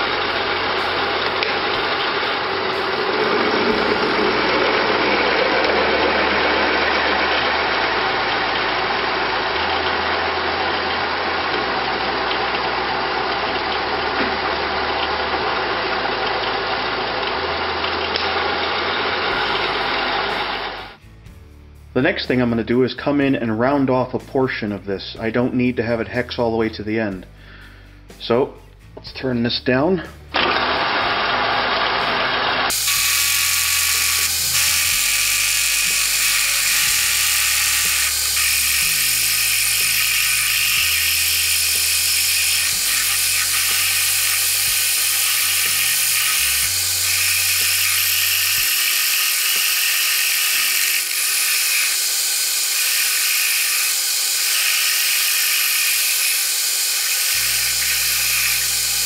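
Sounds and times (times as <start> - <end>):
metal lathe high-pitched whir: 0.0 - 14.0, 14.6 - 21.0, 30.4 - 59.0.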